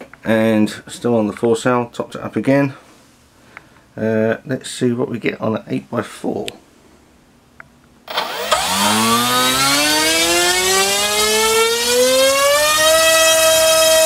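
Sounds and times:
electric motor propeller whine: 8.1 - 14.0.

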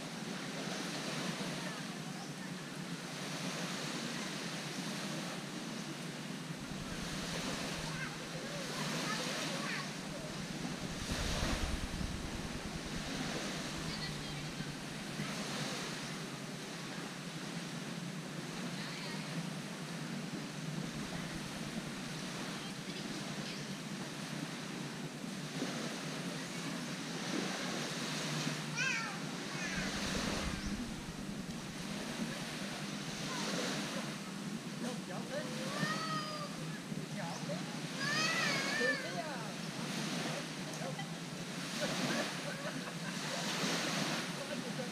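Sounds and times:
gentle surf washing onto beach: 0.0 - 44.9
wind buffeting microphone: 6.4 - 15.8, 29.3 - 34.7.

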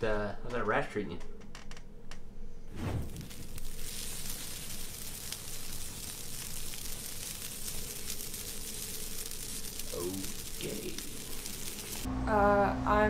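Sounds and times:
fire hissing and crackling: 2.7 - 12.1.

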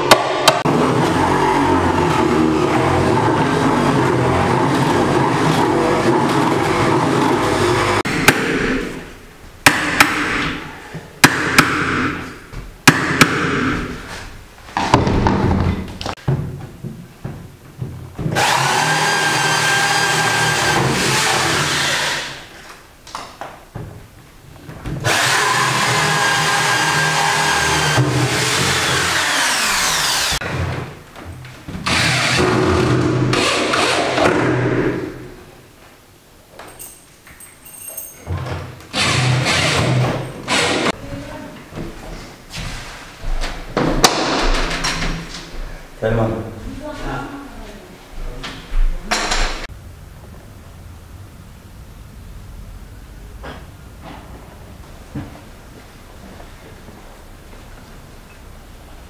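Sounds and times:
electric drill boring into wood: 18.4 - 22.4, 25.0 - 30.4, 31.9 - 34.3, 38.9 - 40.9.

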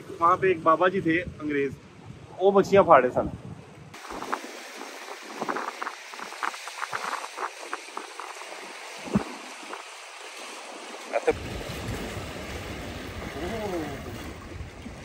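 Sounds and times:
wave thump: 3.9 - 10.0
waves splashing against rocks: 4.0 - 15.0.

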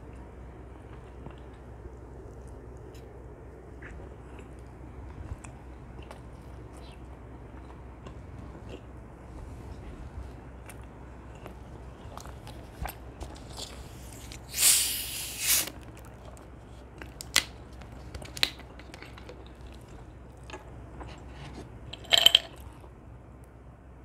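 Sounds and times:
carbonation hiss from bottle: 14.5 - 15.7
ice clinking in glass: 21.9 - 22.6.

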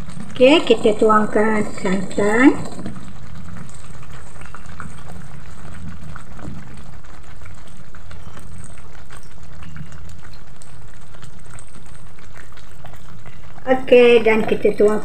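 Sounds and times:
curry bubbling and popping: 0.0 - 15.0.

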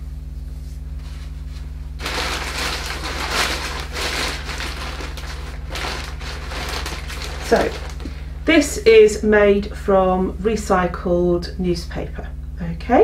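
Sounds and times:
steady low hum: 0.0 - 13.0
plastic bag rustling: 2.0 - 8.2.

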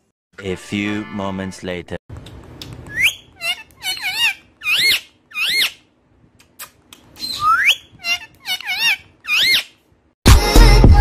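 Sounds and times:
parakeet whistled calls: 2.9 - 5.8, 7.2 - 9.8.

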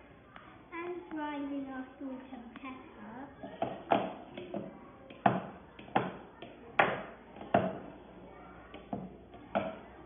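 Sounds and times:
wooden spoon knocking plastic bowl: 3.5 - 7.9, 8.7 - 9.9.

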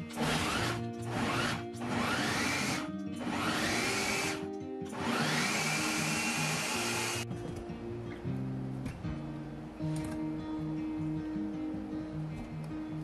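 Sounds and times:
food processor motor whining: 0.0 - 7.2.

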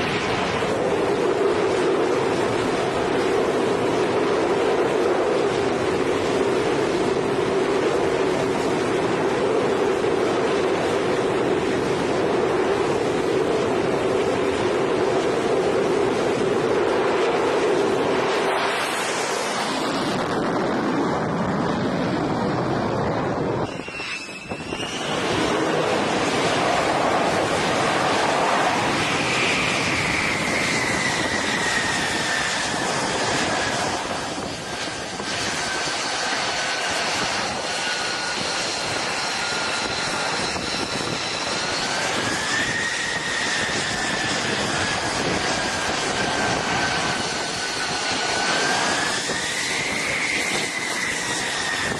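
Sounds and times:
jet engine roaring: 0.0 - 51.9
whining tone falling in pitch: 17.2 - 51.9.

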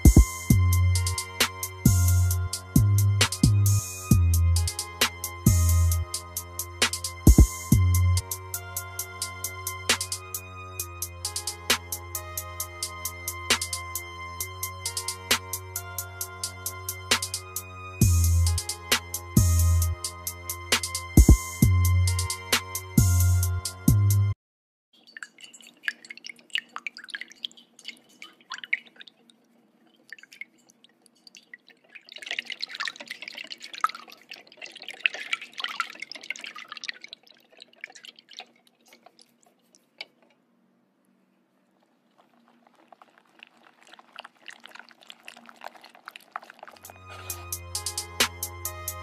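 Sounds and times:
wet squelches and drips: 0.0 - 2.4, 25.0 - 40.4, 41.6 - 48.5
spoon stirring sticky sauce: 41.8 - 48.1.

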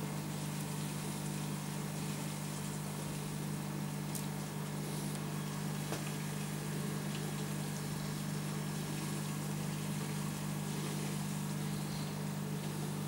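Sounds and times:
aquarium filter pump humming: 0.0 - 13.0
hiss of moving water: 7.6 - 13.0.

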